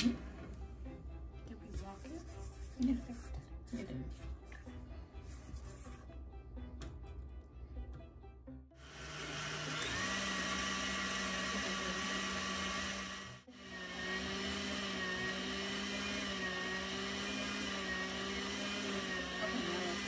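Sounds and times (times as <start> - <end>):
stand mixer motor whine: 8.8 - 20.0.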